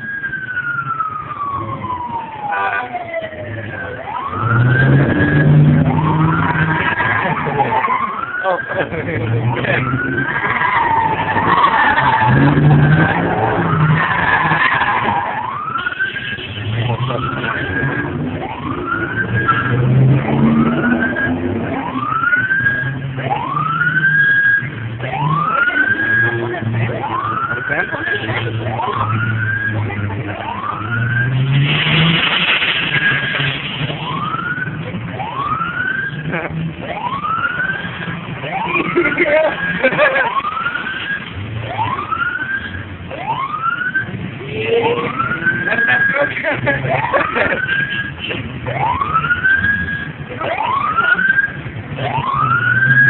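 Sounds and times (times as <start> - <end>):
rising siren whoop: 0.0 - 53.0
car tyres screeching: 3.4 - 53.0
car engine revving hard: 4.3 - 8.0, 8.9 - 42.7.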